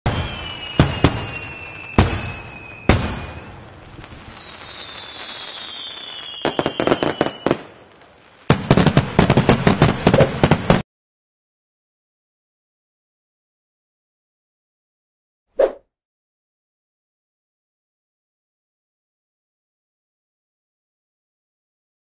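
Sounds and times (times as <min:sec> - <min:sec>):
firework bangs: 0:00.0 - 0:10.8
firework whistles falling in pitch: 0:00.1 - 0:07.8
firework crackling: 0:00.1 - 0:10.8.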